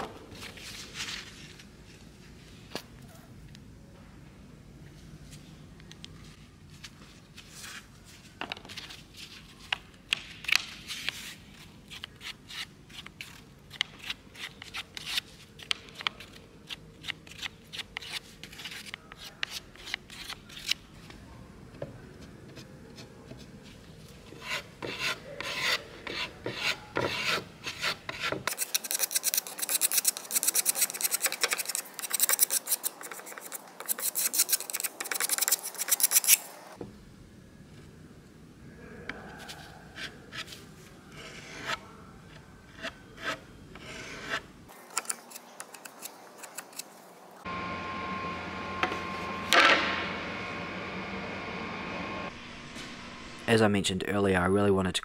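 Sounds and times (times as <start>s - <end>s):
putty knife scraping filler: 24.3s - 36.4s.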